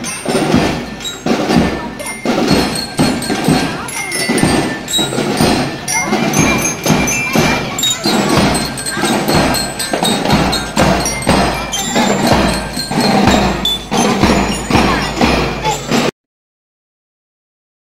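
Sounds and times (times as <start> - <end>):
bell lyres playing a tune: 0.0 - 16.1
snare and bass drums: 0.0 - 16.1.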